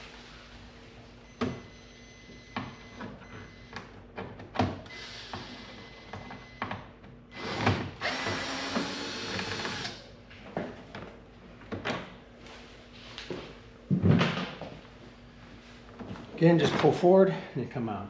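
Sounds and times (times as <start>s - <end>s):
power driver running: 4.6s - 6.6s, 7.3s - 10.1s.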